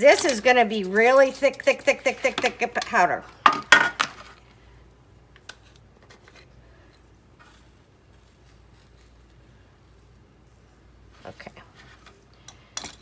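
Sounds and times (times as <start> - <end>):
soft rustle of powder granules: 5.6 - 12.8.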